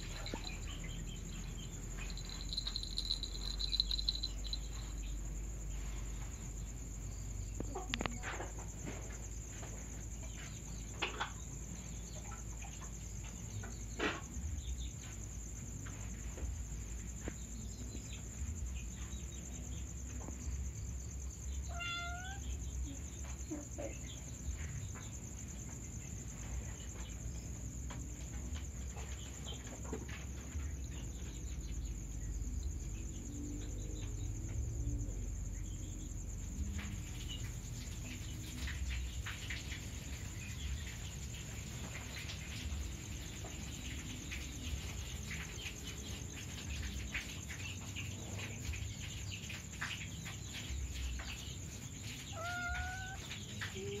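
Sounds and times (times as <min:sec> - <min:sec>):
high insect chirping: 0:00.0 - 0:54.0
kitten meowing: 0:21.7 - 0:22.4, 0:52.3 - 0:53.2.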